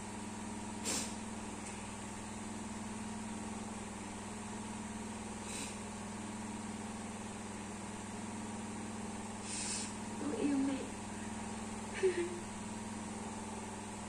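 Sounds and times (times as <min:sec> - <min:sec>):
low mechanical hum: 0:00.0 - 0:14.0
brief hisses: 0:00.8 - 0:01.2.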